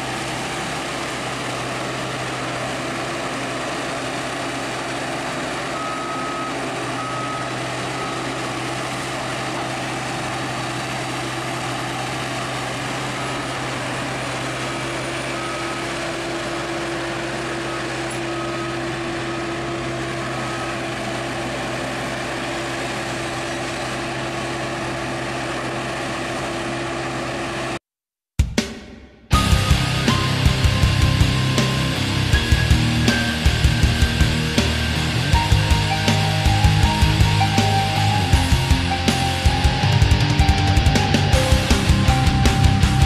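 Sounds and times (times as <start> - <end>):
reversing alarm beeping: 0.0 - 23.5, 29.3 - 43.0
diesel engine running: 0.0 - 27.8, 29.3 - 43.0.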